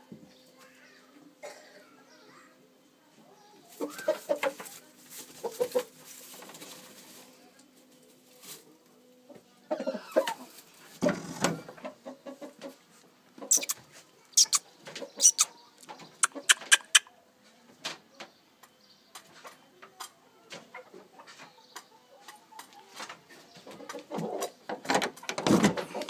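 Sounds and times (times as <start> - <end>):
rooster clucking: 3.8 - 4.6, 9.7 - 10.5, 11.7 - 12.8, 13.4 - 15.6, 16.2 - 17.2.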